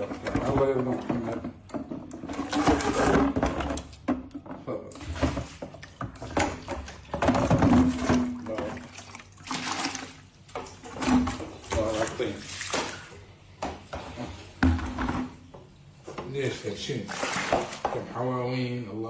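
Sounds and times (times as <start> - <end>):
tap water splashing into bucket: 0.1 - 15.3, 17.0 - 18.1
hand sloshing in water: 8.3 - 13.2, 17.0 - 18.0.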